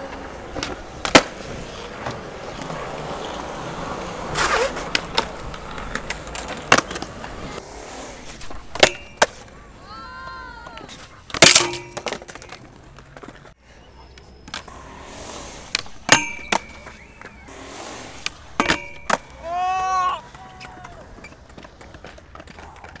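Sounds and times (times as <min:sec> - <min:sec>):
wheels rolling on concrete: 0:00.0 - 0:23.0
skateboard clacking on metal bar: 0:08.7 - 0:09.4, 0:11.3 - 0:13.3, 0:15.7 - 0:17.0, 0:18.2 - 0:19.4
person shouting: 0:09.8 - 0:10.9, 0:19.3 - 0:21.1
metal rail ringing: 0:11.4 - 0:12.2, 0:16.0 - 0:17.0, 0:18.6 - 0:19.3.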